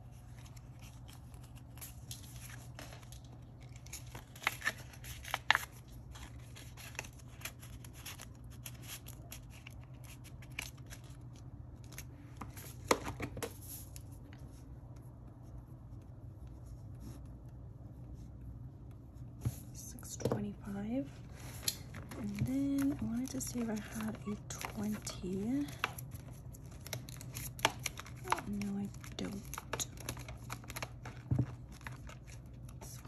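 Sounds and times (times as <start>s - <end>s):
paper banknotes rustling: 21.4s - 33.0s.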